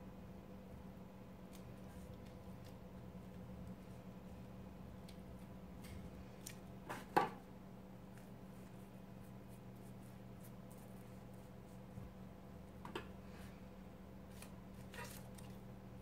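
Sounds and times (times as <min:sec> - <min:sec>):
steady low hum: 0:00.0 - 0:16.0
paper rustling: 0:14.3 - 0:15.6.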